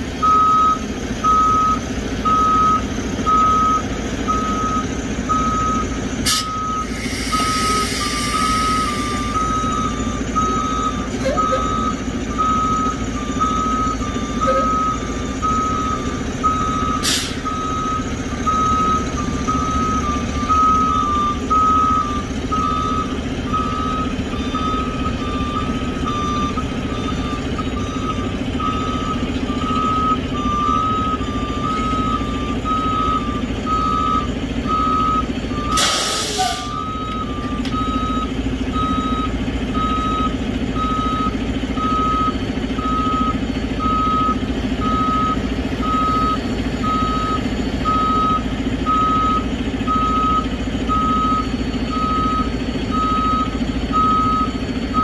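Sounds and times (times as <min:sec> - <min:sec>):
truck engine running: 0:00.0 - 0:55.0
backup alarm beeping: 0:00.2 - 0:55.0
loud hiss: 0:06.3 - 0:09.0.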